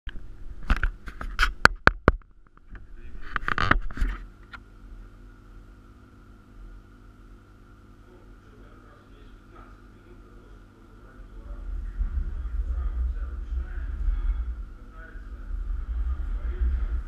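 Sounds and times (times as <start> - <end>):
faint electrical hum: 0.1 - 17.0
rustling scrape: 3.0 - 4.3.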